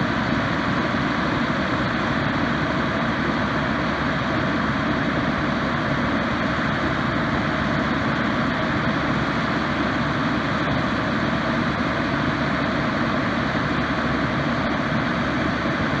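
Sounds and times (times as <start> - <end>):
engine and pump rumble: 0.0 - 16.0.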